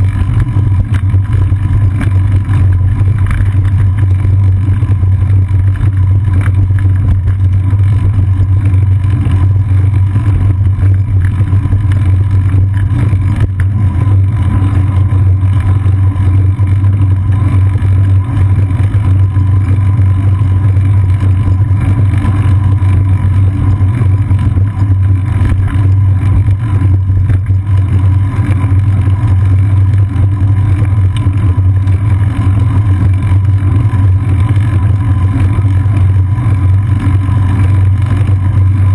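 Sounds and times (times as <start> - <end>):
riding vibration: 0.0 - 38.9
strong wind rumble: 0.0 - 38.9.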